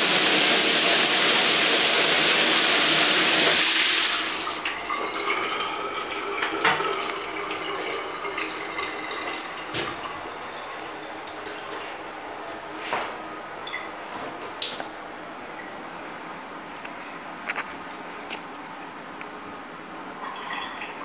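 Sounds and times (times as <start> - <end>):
shower water rushing: 0.0 - 13.0
water drips and clicks: 4.6 - 11.8, 13.5 - 13.9.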